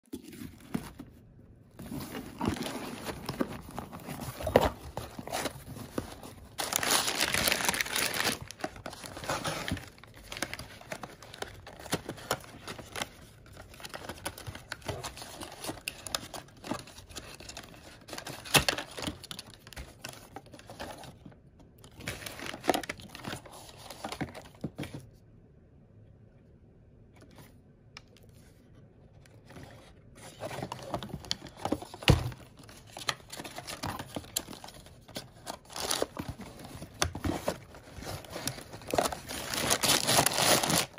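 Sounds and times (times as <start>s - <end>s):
packing paper crinkling: 1.8s - 21.1s, 30.2s - 40.9s
paperboard boxes clicking and scraping: 29.5s - 40.9s.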